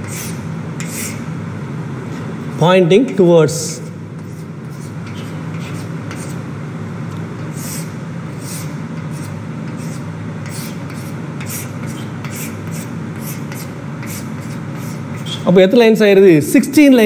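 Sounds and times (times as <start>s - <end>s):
chalk scratching on a blackboard: 0.0s - 1.3s, 3.6s - 6.4s, 7.4s - 15.6s
steady low hum: 0.0s - 17.0s.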